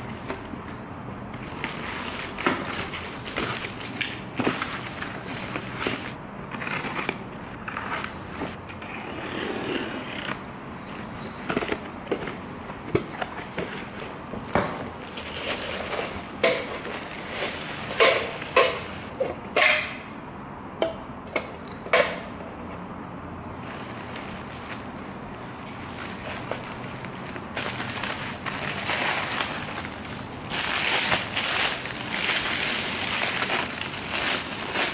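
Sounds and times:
packing paper and plastic rustling: 1.3s - 6.2s, 13.0s - 19.1s, 23.6s - 34.9s.

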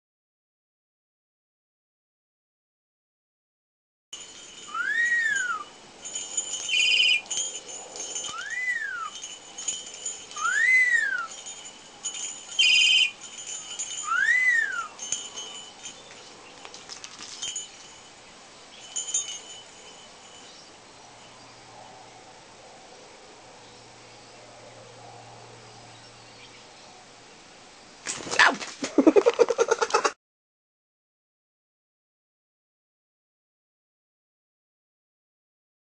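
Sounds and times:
man whistling: 4.7s - 5.7s, 8.3s - 9.2s, 10.4s - 11.4s, 14.0s - 14.9s
parrot shrill calls: 4.7s - 5.7s, 6.7s - 7.3s, 10.4s - 11.3s, 12.6s - 13.1s, 14.0s - 14.9s
bird chirps: 6.6s - 7.4s, 12.6s - 13.2s.

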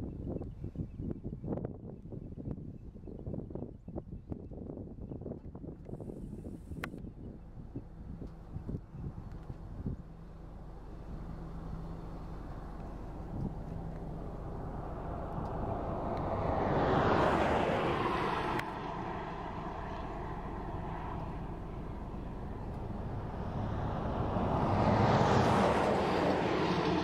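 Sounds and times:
outdoor background noise: 0.0s - 27.0s
vehicles passing: 6.8s - 27.0s.

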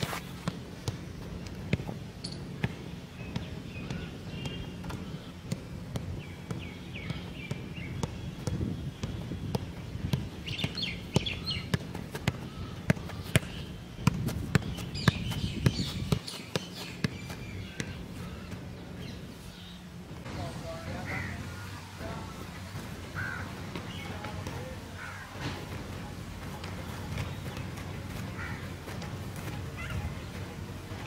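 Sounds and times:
birds chirping: 0.0s - 31.0s
football thudding against boots: 2.6s - 18.0s.

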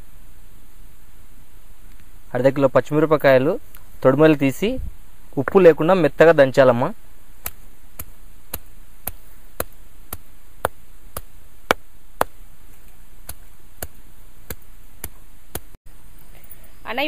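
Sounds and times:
stone pounding chillies: 7.4s - 15.8s.

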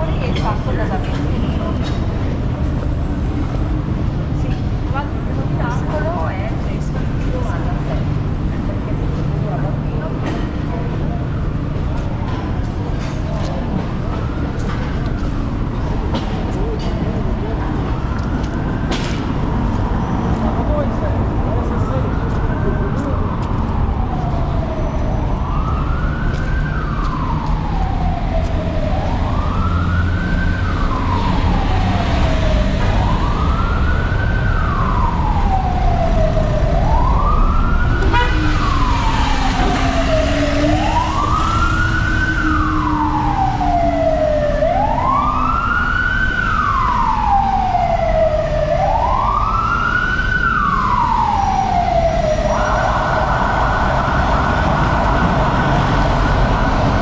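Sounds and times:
low street traffic: 0.0s - 57.0s
siren wailing: 17.3s - 57.0s.

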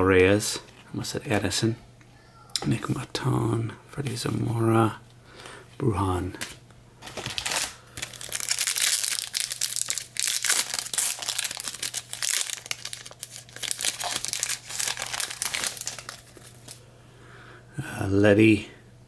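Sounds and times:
wrapper crinkling and tearing: 6.4s - 16.8s.

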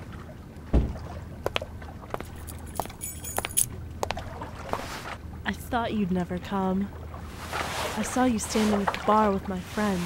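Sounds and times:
dull thud: 0.7s - 1.0s
keys jangling: 2.4s - 3.7s.

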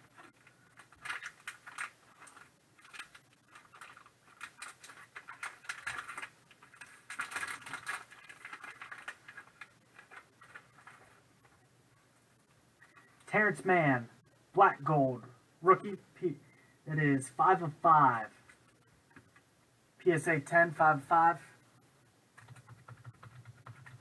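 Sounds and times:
envelope rustling and crinkling: 0.1s - 11.6s.

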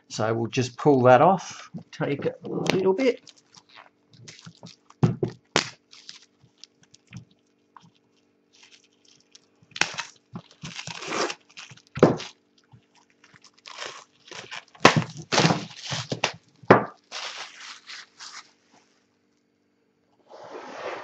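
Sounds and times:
shrink-wrap crinkling: 2.5s - 19.0s.

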